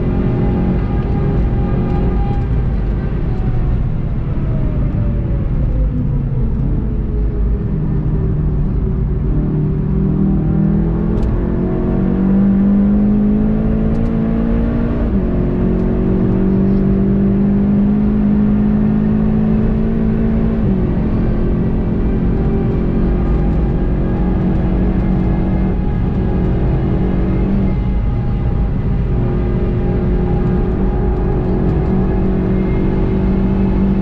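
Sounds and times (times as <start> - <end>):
car engine accelerating hard: 0.0 - 34.0
road and wind noise: 0.0 - 34.0
gear upshifts: 17.7 - 34.0.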